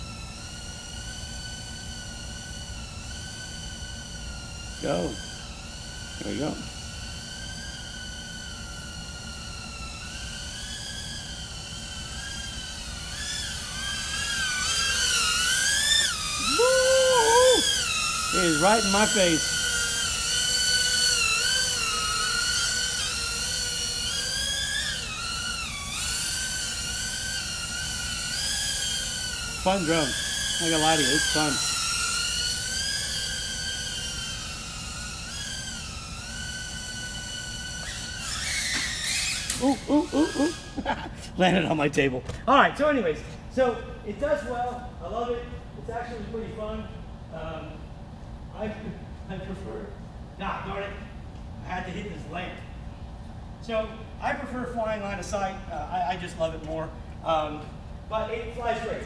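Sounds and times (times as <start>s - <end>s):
drone motors whining: 0.0s - 42.5s.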